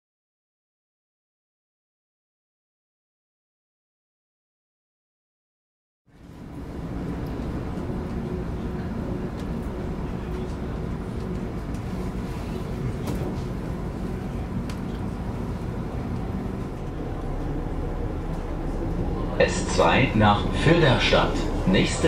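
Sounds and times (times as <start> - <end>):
train rumbling: 6.1 - 22.0
faint rail clicks: 7.1 - 13.6, 14.4 - 17.0.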